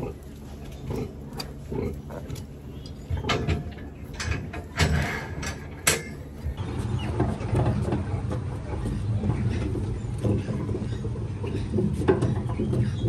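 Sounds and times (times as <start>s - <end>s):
cart rolling on concrete: 2.8s - 13.0s.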